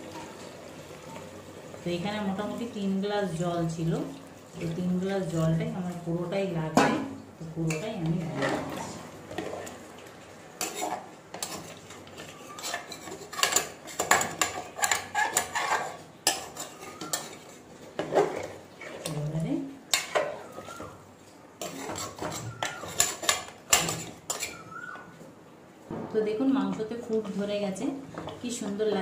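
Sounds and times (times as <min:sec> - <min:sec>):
metal ladle scraping pot: 0:10.6 - 0:19.2, 0:21.6 - 0:24.7.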